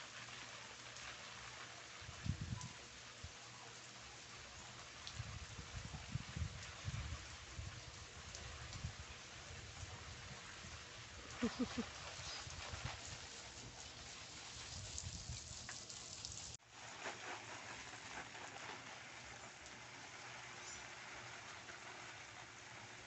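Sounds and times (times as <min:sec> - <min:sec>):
water spray pattering on leaves: 0:00.0 - 0:23.0.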